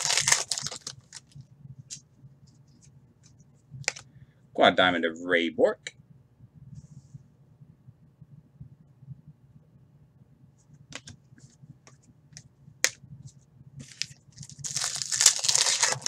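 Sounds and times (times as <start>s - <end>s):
cards rustling and shuffling: 0.0s - 1.4s, 13.8s - 16.0s.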